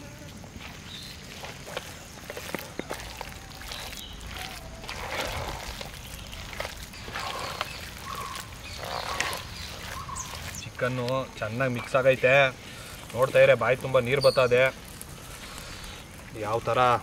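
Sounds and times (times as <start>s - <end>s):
hands squishing wet coating: 1.3s - 13.5s.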